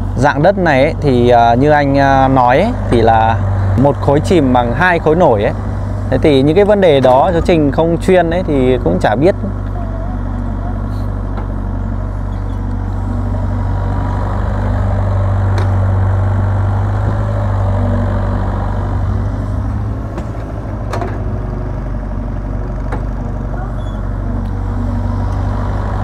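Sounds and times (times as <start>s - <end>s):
excavator diesel engine running: 0.0s - 26.0s
sharp knocks: 20.0s - 21.3s.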